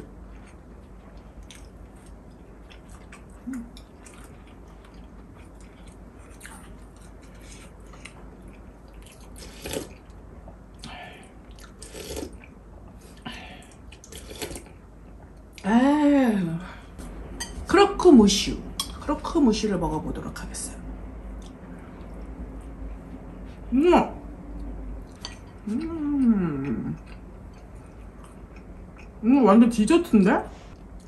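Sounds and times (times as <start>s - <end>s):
soft chewing: 0.0s - 15.7s, 21.2s - 23.7s, 24.4s - 29.2s.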